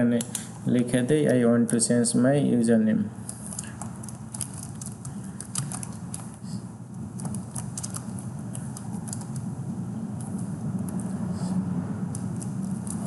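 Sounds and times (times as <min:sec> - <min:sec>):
low hum: 0:03.0 - 0:13.0
keyboard keys clicking: 0:03.3 - 0:06.4, 0:07.2 - 0:09.5.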